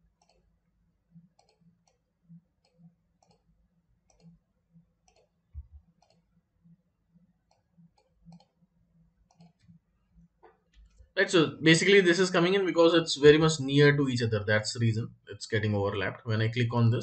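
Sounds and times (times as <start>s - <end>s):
computer mouse clicks: 0.0s - 0.5s, 1.1s - 4.4s, 5.0s - 6.4s, 7.4s - 8.6s, 9.2s - 9.8s.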